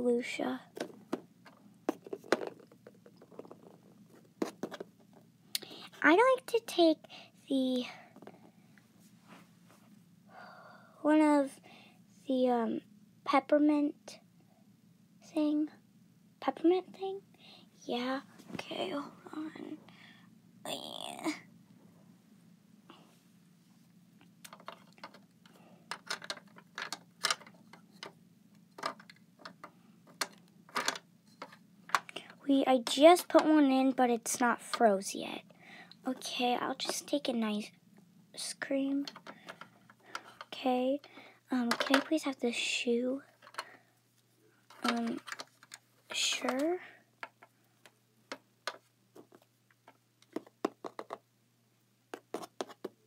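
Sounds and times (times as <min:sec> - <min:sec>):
plastic toys clicking and tapping: 0:24.4 - 0:28.2, 0:28.8 - 0:32.2, 0:39.0 - 0:40.5, 0:41.6 - 0:42.2, 0:43.4 - 0:43.7, 0:44.7 - 0:45.8, 0:48.3 - 0:48.9, 0:49.8 - 0:51.2
plastic toy pieces clicking: 0:25.9 - 0:28.1.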